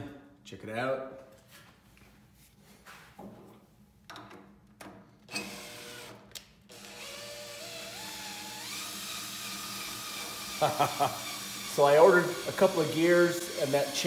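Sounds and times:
drill motor whine: 5.3s - 6.1s, 6.7s - 14.0s.

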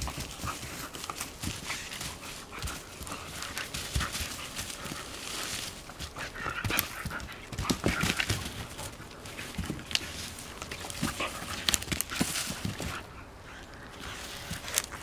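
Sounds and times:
dog paw steps scuffling: 0.0s - 15.0s
stick clattering on ground: 6.6s - 13.0s.

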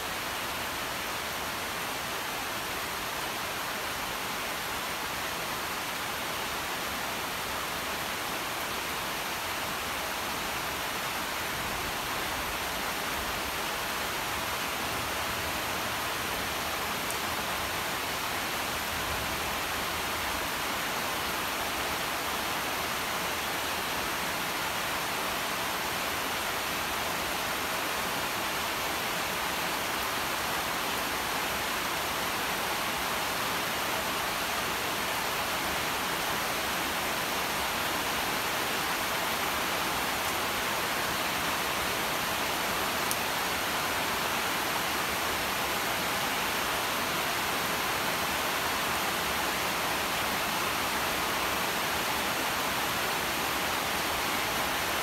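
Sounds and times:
rain falling on leaves: 0.0s - 55.0s.

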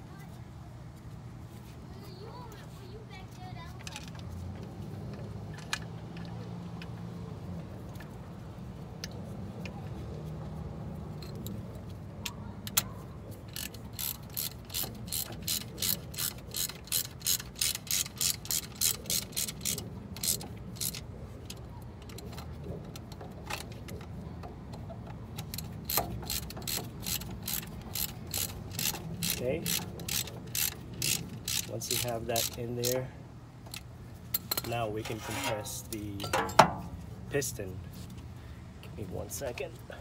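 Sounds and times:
ratchet wrench clicking: 13.5s - 23.8s, 25.3s - 33.1s, 33.7s - 35.5s.

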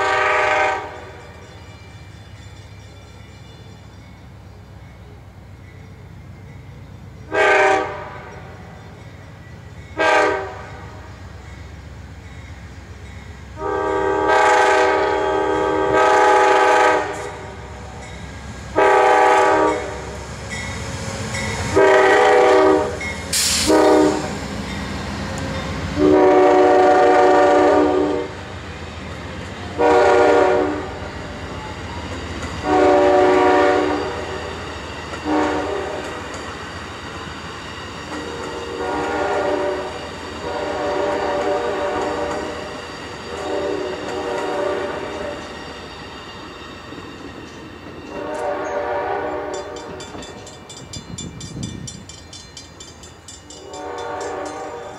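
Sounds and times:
train air horn blasts: 0.0s - 1.2s, 7.3s - 8.8s, 10.0s - 11.1s, 13.5s - 17.9s, 18.7s - 20.2s, 21.6s - 24.5s, 25.9s - 28.4s, 29.7s - 31.1s, 32.6s - 34.5s, 35.2s - 36.2s, 38.2s - 45.5s, 48.1s - 50.1s, 53.6s - 54.9s
train wheels rumbling on rails: 0.0s - 54.9s.

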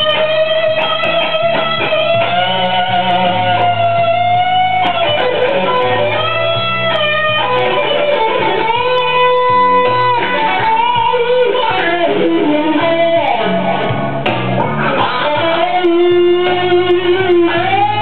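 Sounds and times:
backing track with bass line: 0.0s - 18.0s
blues guitar lead: 0.0s - 18.0s.

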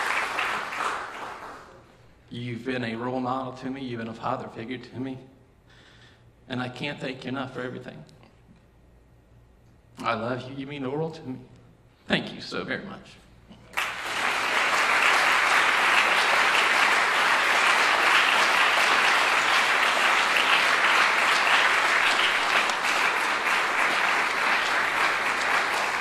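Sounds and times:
crowd applauding: 0.0s - 1.9s, 13.7s - 26.0s.

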